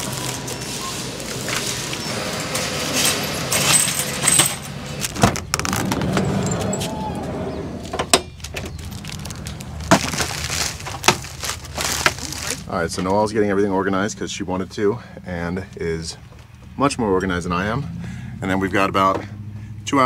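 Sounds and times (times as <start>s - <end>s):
plastic bags rustling: 0.0s - 6.7s, 8.3s - 13.2s
sliding door clicks and knocks: 2.4s - 8.8s.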